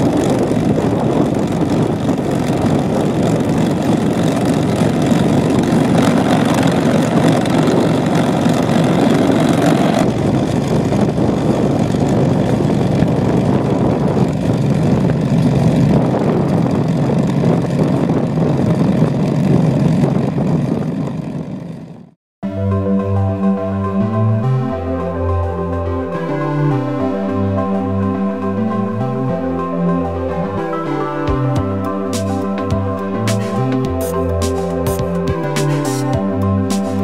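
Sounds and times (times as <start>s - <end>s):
tractor engine under load: 0.0s - 22.0s.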